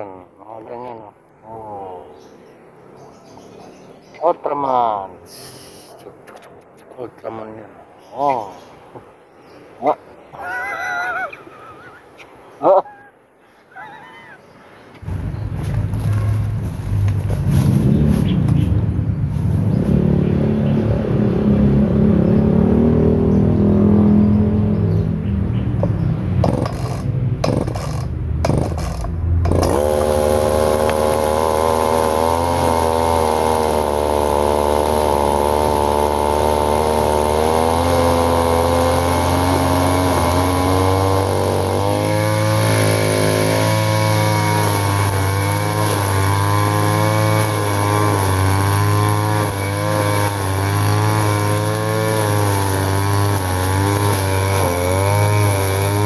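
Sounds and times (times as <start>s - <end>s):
brush cutter engine cutting grass: 15.0s - 21.2s, 25.8s - 56.0s.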